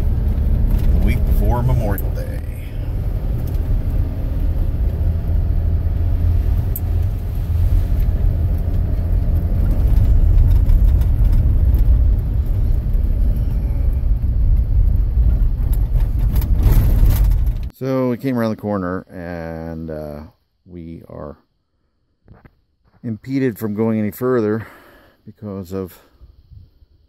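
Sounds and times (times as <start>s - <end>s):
vehicle engine and tyre rumble: 0.0s - 17.7s.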